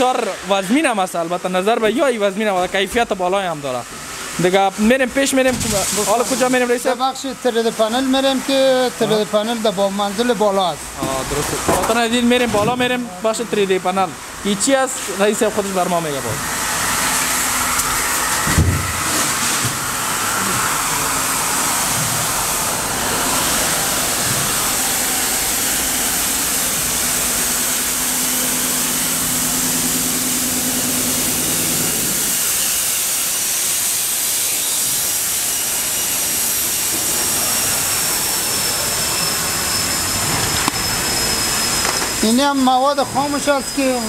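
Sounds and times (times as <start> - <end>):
factory machinery: 0.0 - 44.0
steam hissing: 3.4 - 44.0
thump: 18.5 - 18.8
thin high whistle: 38.4 - 44.0.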